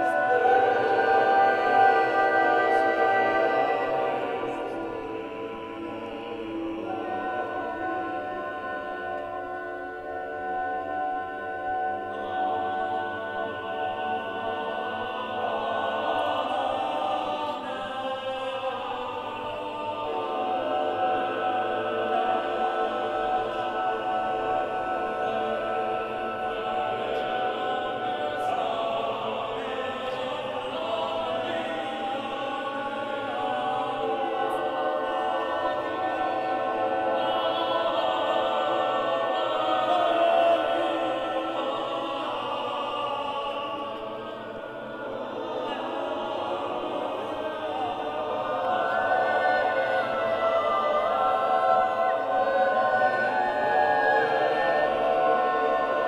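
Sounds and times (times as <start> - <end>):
choir singing a cappella: 0.0 - 56.0.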